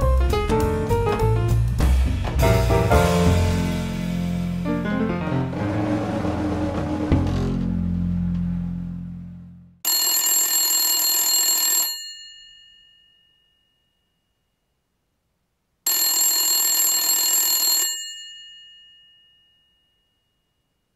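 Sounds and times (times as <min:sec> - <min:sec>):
telephone bell ringing: 0:09.8 - 0:13.7, 0:15.9 - 0:20.0.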